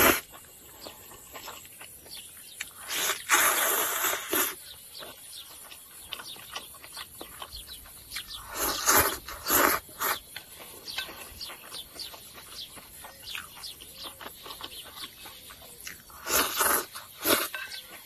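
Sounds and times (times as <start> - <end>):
noodles slurped: 0.0 - 1.5, 2.6 - 4.7, 8.2 - 10.3, 15.9 - 17.7
wet chewing: 0.0 - 18.0.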